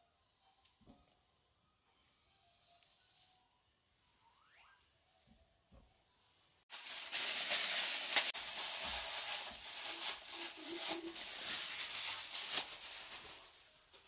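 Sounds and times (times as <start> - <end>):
plastic bag crinkling: 6.7 - 14.0.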